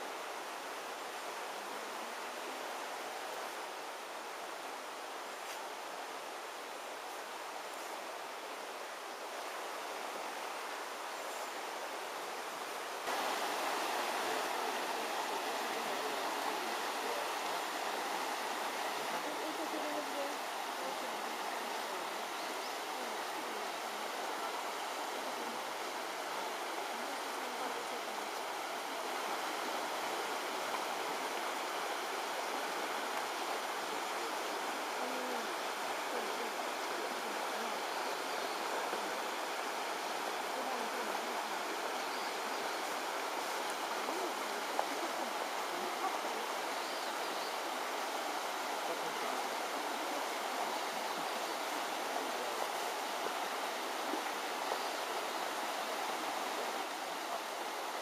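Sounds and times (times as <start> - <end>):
water rushing over stones: 11.8 - 58.0.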